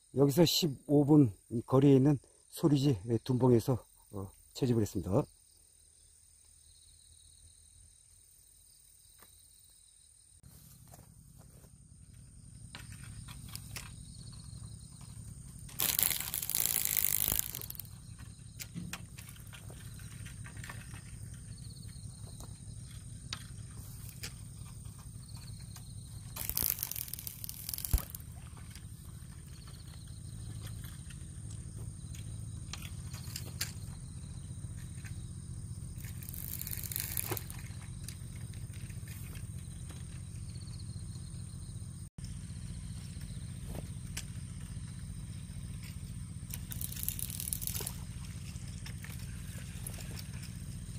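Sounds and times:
steady low hum: 10.4 - 50.9
low outdoor rumble: 10.5 - 50.9
fishing rod rustling and scraping: 15.7 - 18.3, 26.2 - 30.0, 36.0 - 39.6, 46.6 - 50.6.

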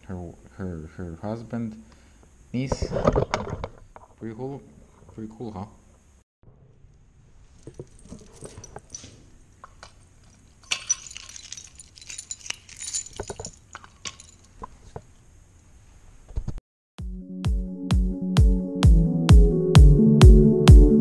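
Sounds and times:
metal keys jangling: 7.8 - 9.2, 10.2 - 14.5.

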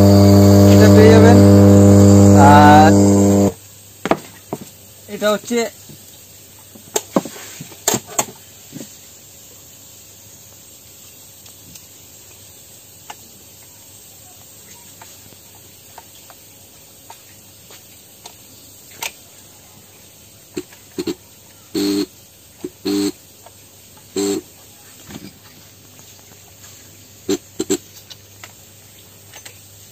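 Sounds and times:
steady low hum: 0.0 - 3.6
faint hiss: 0.0 - 29.9.

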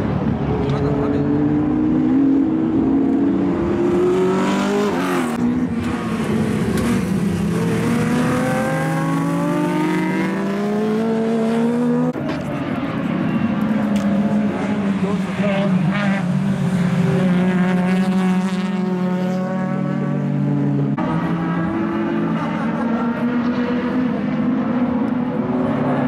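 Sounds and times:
racing car engines at full throttle: 0.0 - 26.0.

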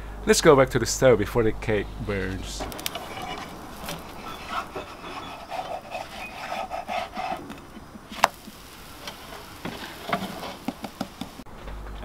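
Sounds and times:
plastic spatula scraping frying pan: 2.7 - 11.4.

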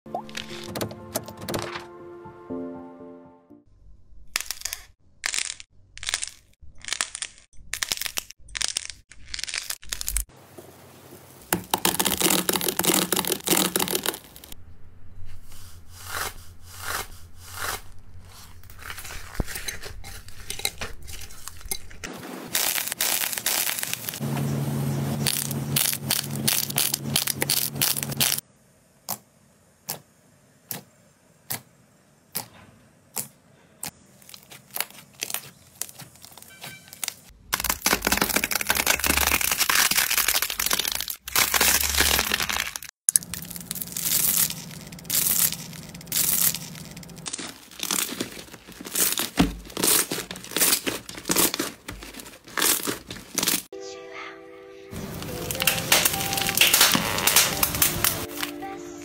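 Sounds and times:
slime squeezed by hand crackling: 55.5 - 58.4.

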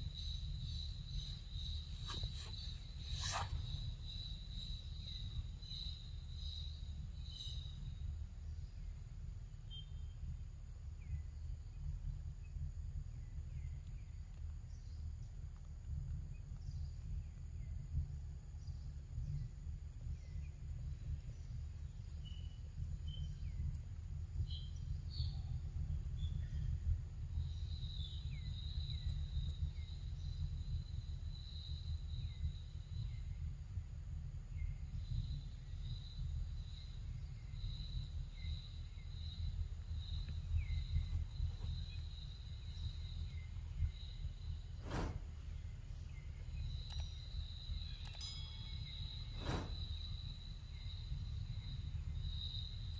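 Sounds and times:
low rumble: 10.0 - 48.1, 48.7 - 52.4
high-pitched insect drone: 46.2 - 52.9.

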